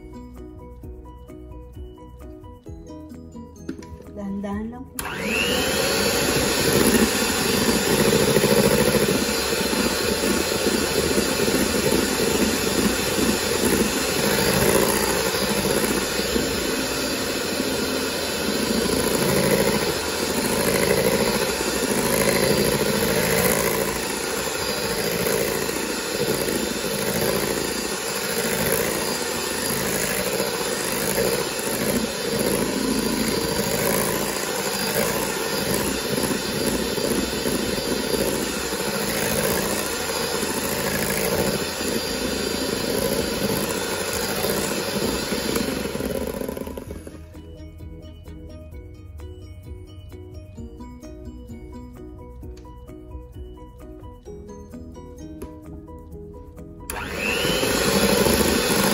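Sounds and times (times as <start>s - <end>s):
electric hand mixer whipping cream: 5.0s - 47.8s, 56.9s - 58.9s.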